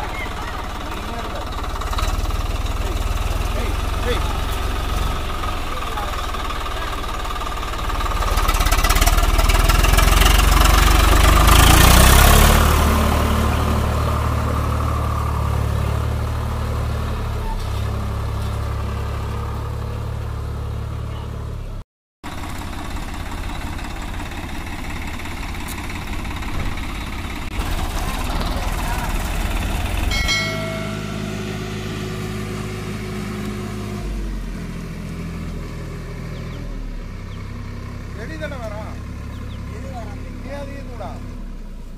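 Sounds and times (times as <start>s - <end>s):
tractor diesel engine revving: 0.0s - 41.9s
brief ringing tone: 30.1s - 31.5s.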